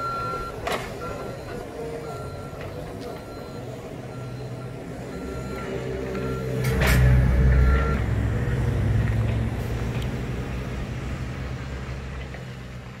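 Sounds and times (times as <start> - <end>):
travel alarm beep: 0.0 - 6.6, 7.2 - 8.0
diesel engine running: 0.0 - 13.0.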